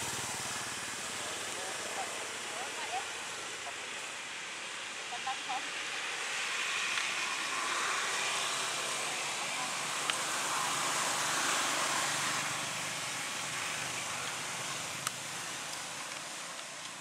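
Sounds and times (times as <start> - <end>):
hiss-like outdoor background noise: 0.0 - 17.0.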